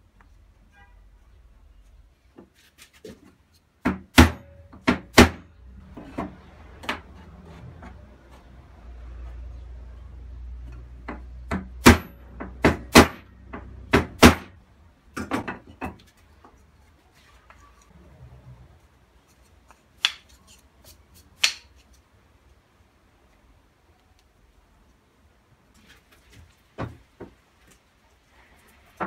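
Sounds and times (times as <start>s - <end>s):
wooden blocks clacking: 20.0s - 20.3s.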